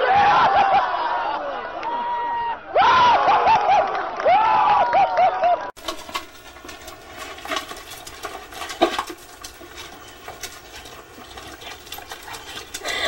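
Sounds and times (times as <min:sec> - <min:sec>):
pets scuffling over food bowl: 0:05.8 - 0:13.0.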